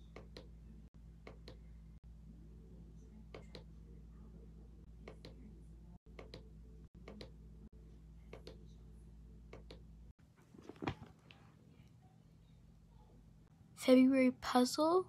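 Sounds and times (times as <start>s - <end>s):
handling noise: 10.4s - 11.4s.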